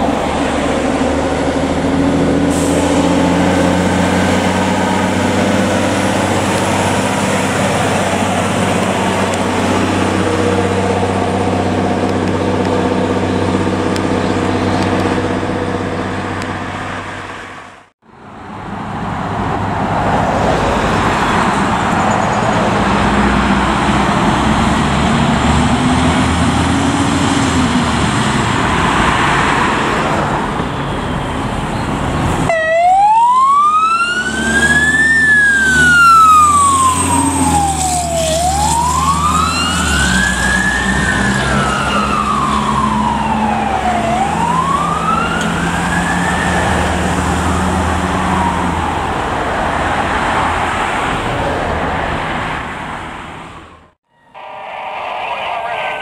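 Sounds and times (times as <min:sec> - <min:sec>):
fire engine siren wailing: 0:00.0 - 0:17.3, 0:29.6 - 0:51.1, 0:53.6 - 0:56.0
truck engine running: 0:00.0 - 0:17.9
road noise: 0:00.0 - 0:56.0.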